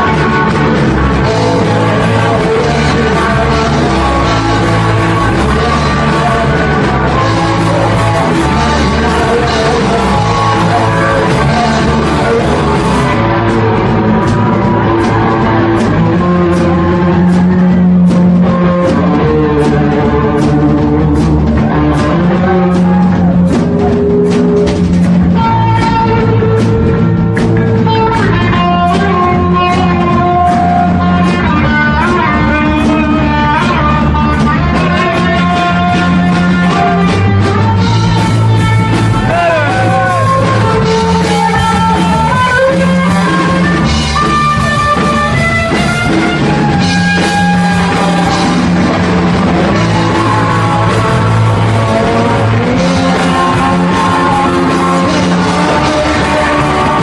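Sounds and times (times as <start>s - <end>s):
bass guitar: 0.0s - 57.0s
electric guitar melody: 0.0s - 57.0s
steady drum beat: 0.0s - 57.0s.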